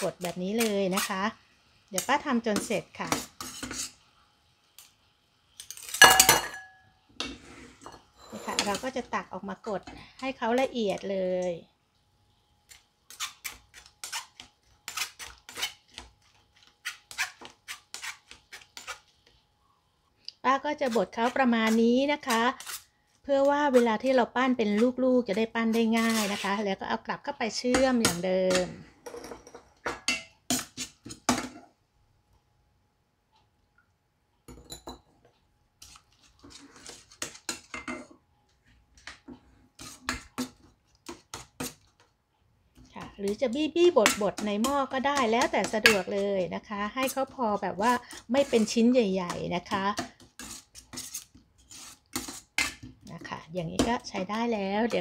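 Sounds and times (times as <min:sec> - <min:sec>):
spoon scraping a metal pot: 0:00.0 - 0:01.2, 0:02.0 - 0:04.0, 0:05.6 - 0:09.1, 0:12.7 - 0:19.3, 0:20.8 - 0:26.7, 0:35.8 - 0:38.1, 0:39.0 - 0:41.9, 0:42.8 - 0:53.2
metal ladle scraping mesh strainer: 0:24.6 - 0:26.6, 0:47.0 - 0:52.8.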